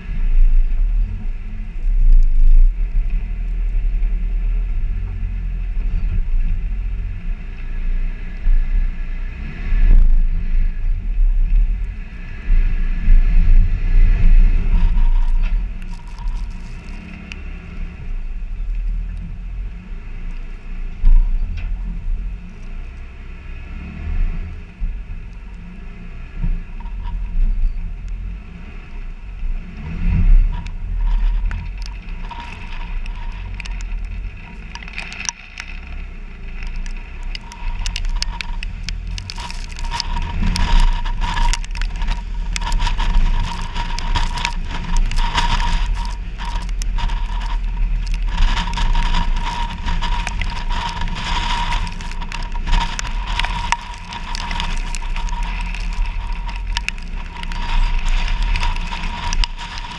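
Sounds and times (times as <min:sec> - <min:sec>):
low engine drone: 0:00.0 - 0:59.9
tyres crunching over rock and gravel: 0:12.8 - 0:19.3, 0:29.6 - 0:59.9.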